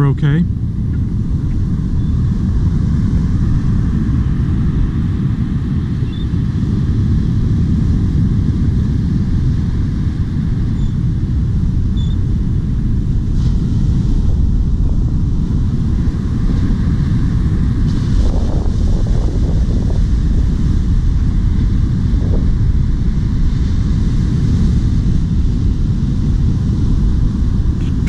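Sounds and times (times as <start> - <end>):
wind buffeting microphone: 0.0 - 28.0
surf breaking on beach: 0.6 - 28.0.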